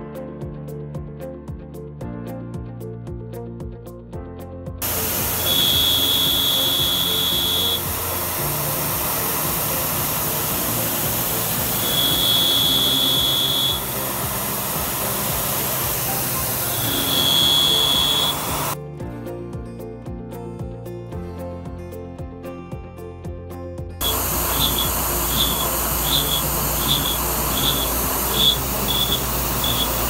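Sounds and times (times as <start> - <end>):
high steady whine: 4.8 - 18.8, 24.0 - 30.0
milling machine hiss and hum: 4.8 - 18.8, 24.0 - 30.0.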